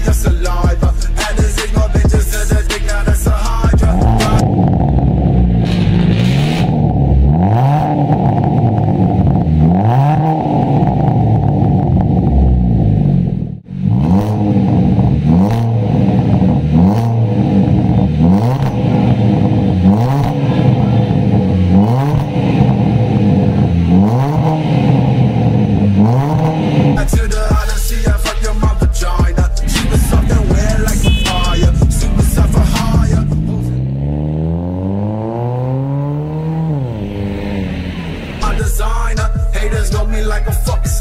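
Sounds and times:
car engine revving: 0:00.0 - 0:40.8.

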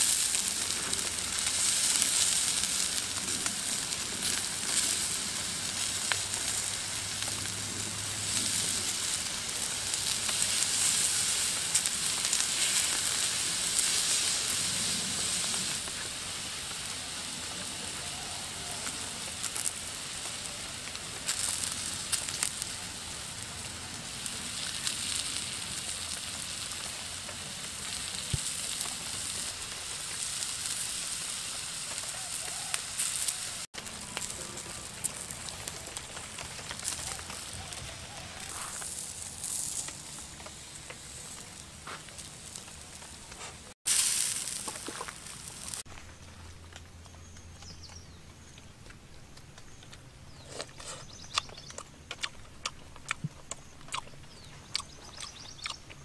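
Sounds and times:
food sizzling on hot stone: 0:00.0 - 0:45.9
small pops and crackles: 0:18.8 - 0:22.8, 0:24.2 - 0:56.0.

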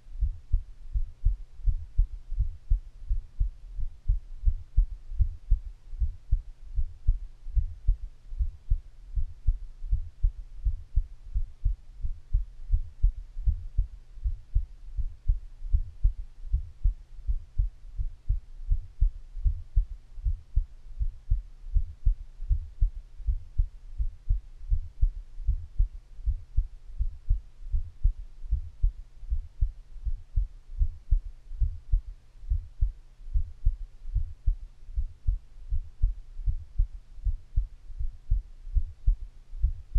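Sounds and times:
heartbeat low dull thumps: 0:00.0 - 0:39.9.

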